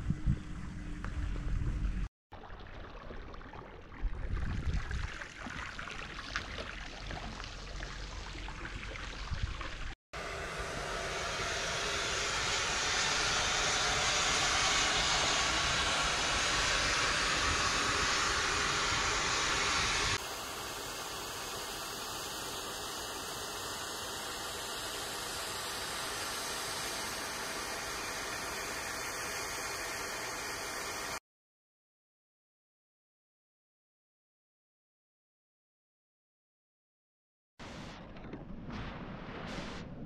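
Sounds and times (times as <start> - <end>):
steam hissing from vents: 10.2 - 31.2.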